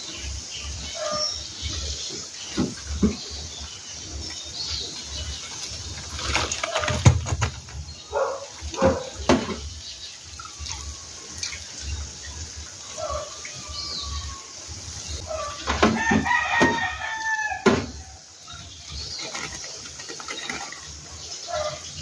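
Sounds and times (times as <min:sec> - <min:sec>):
rooster crowing: 0:15.3 - 0:18.2.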